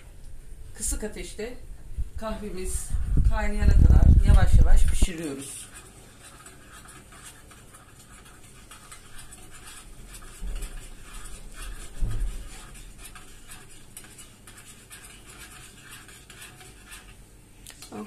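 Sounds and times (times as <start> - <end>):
teaspoon scraping metal pot: 4.3 - 17.2.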